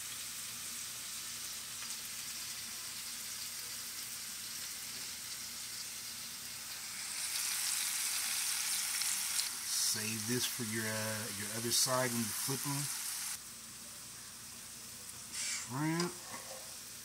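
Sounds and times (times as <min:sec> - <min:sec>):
shrimp sizzling in frying pan: 0:00.0 - 0:17.0
steak searing in pan: 0:00.0 - 0:17.0.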